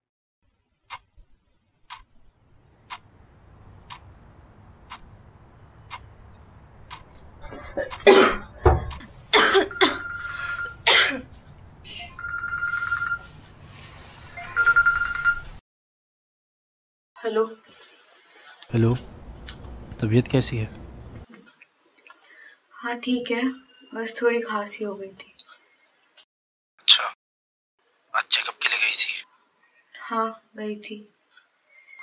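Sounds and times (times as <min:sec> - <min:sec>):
clock ticking: 0:01.9 - 0:02.1, 0:02.8 - 0:03.2, 0:03.8 - 0:08.1
woman coughing: 0:07.5 - 0:08.5, 0:09.3 - 0:10.0, 0:10.8 - 0:11.3
mobile phone ringing: 0:09.7 - 0:10.8, 0:12.0 - 0:13.4, 0:14.3 - 0:15.6.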